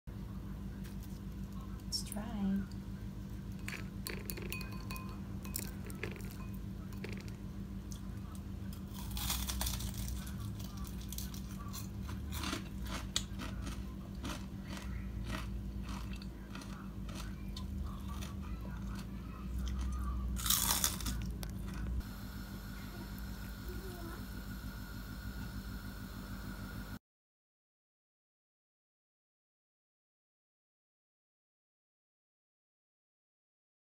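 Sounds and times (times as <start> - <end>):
steady low hum: 0.1 - 27.0
crispy food crunching when chewed: 3.6 - 4.6, 5.5 - 22.0.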